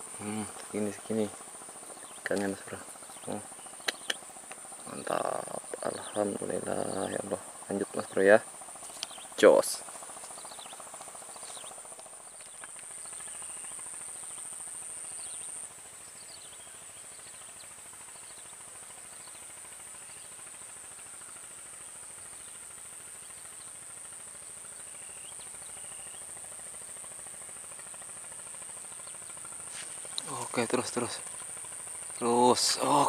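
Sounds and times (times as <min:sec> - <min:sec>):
insects droning: 0:00.0 - 0:33.0
short insect chirps: 0:00.0 - 0:33.0.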